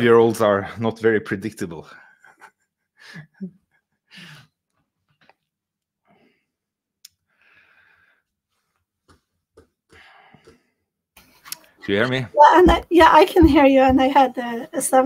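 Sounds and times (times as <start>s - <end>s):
faint breaths: 7.3s - 8.7s, 9.9s - 10.8s.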